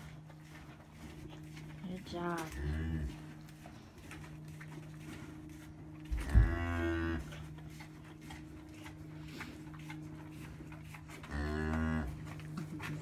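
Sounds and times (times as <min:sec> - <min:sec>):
cow mooing: 0:06.2 - 0:07.4, 0:11.3 - 0:12.3.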